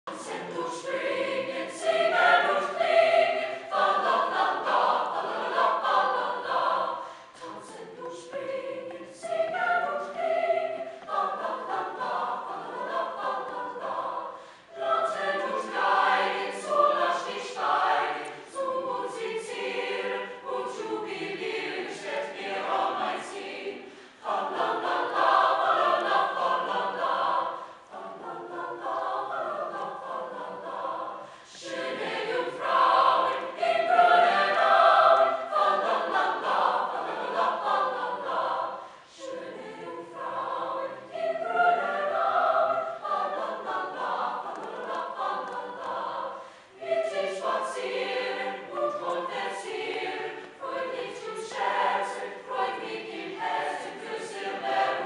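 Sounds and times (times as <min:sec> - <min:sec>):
mixed choir singing: 0:00.0 - 0:55.0.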